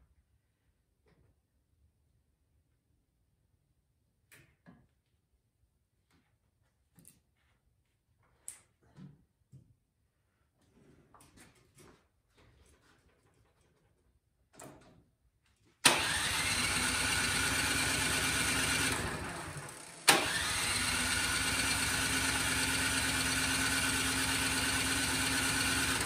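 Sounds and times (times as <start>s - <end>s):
electric starter cranking engine: 15.8s - 26.0s.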